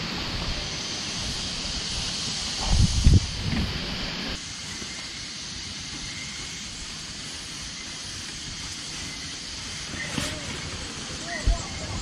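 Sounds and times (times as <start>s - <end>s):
strong wind blowing: 0.0s - 4.4s.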